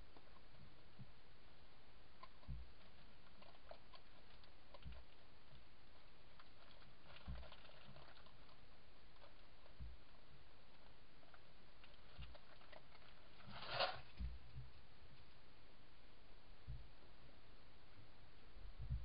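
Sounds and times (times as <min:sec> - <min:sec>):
soft low thumps: 0:14.1 - 0:15.2, 0:16.6 - 0:19.0.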